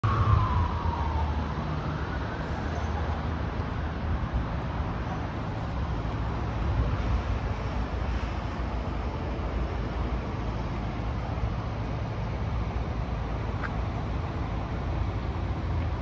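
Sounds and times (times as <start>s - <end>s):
traffic noise: 0.0s - 16.0s.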